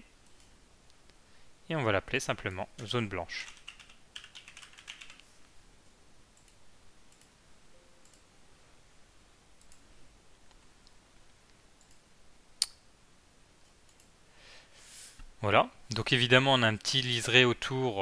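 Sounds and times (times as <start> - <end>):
computer keyboard typing: 2.8 - 5.3.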